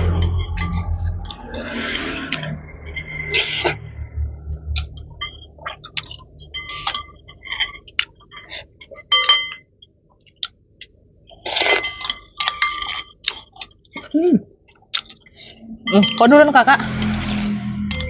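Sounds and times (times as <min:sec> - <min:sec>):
cutlery clinking on glass bowls: 0:00.1 - 0:03.9, 0:04.8 - 0:09.7, 0:11.3 - 0:14.1, 0:15.9 - 0:18.0.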